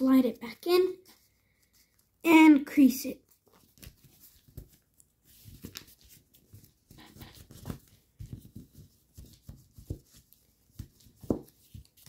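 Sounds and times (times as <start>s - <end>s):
paper rustling and scraping: 3.2s - 12.0s.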